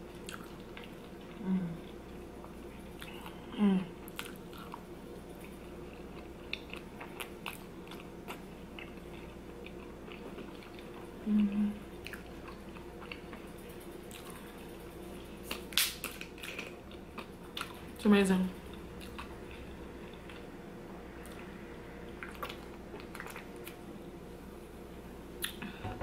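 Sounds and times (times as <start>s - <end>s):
wet chewing with mouth clicks: 0.1s - 3.4s, 4.0s - 17.9s, 22.1s - 23.8s
closed-mouth hum: 25.3s - 26.0s.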